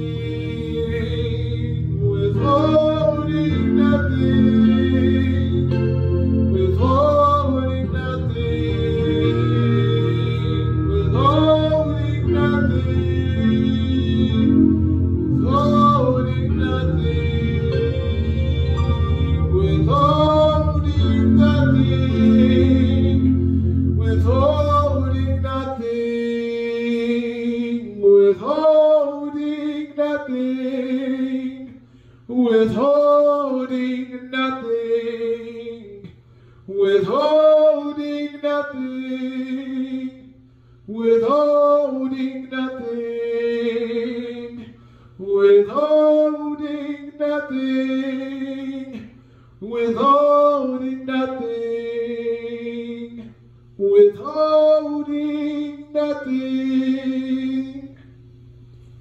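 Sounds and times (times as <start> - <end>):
sustained keyboard chords: 0.0 - 27.4
man singing: 0.0 - 58.0.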